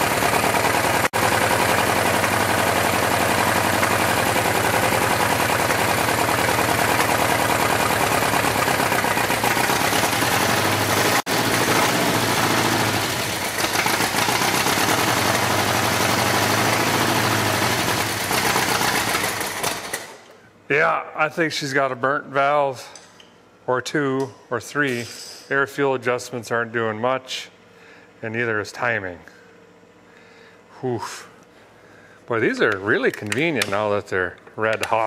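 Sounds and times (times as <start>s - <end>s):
tractor engine running: 0.0s - 20.1s.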